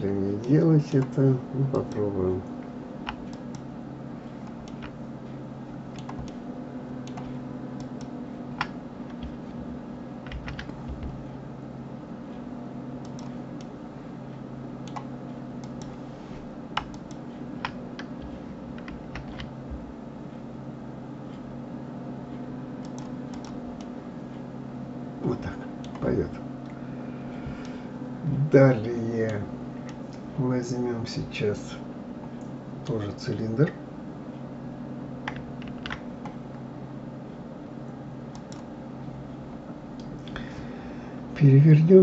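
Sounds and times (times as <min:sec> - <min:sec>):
steady low hum: 0:00.0 - 0:42.0
keyboard keys clicking: 0:05.9 - 0:06.4, 0:10.2 - 0:11.2, 0:16.8 - 0:19.5.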